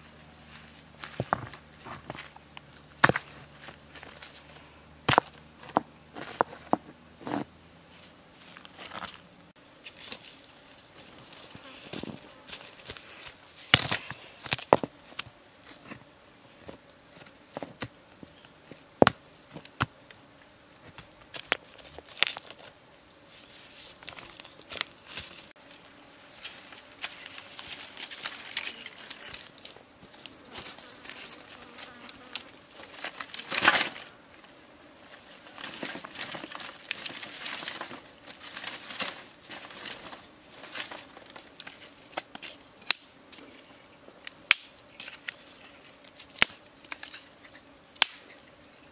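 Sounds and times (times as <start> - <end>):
rustling of dry leaves: 0.0 - 18.8, 20.8 - 48.9
faint insect buzz: 0.0 - 48.9
knocks and cracks of rocks: 3.0 - 4.4, 5.1 - 7.4, 12.0 - 16.0
twigs snapping underfoot: 35.6 - 43.1, 44.2 - 45.4, 48.0 - 48.4.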